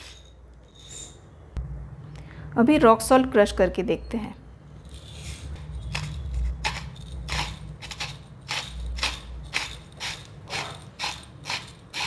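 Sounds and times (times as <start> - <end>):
salt grinder crunching: 5.9 - 12.0.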